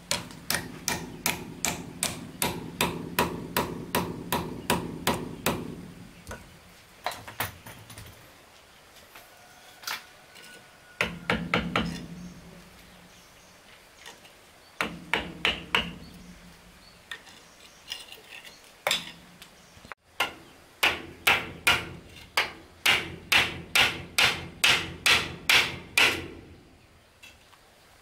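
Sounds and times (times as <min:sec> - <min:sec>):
hammer nailing wooden boards: 0:00.0 - 0:05.9, 0:11.0 - 0:12.1, 0:14.8 - 0:16.1, 0:20.2 - 0:26.5.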